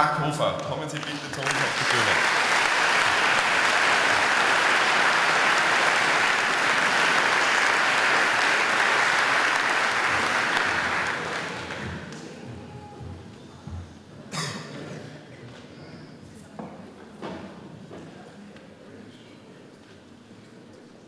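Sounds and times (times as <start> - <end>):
audience applauding: 0.9 - 12.4.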